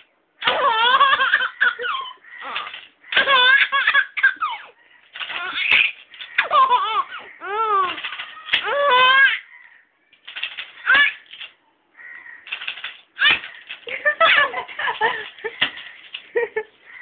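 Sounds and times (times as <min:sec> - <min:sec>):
baby laughing: 0:00.4 - 0:09.5, 0:10.8 - 0:11.4, 0:13.2 - 0:17.0.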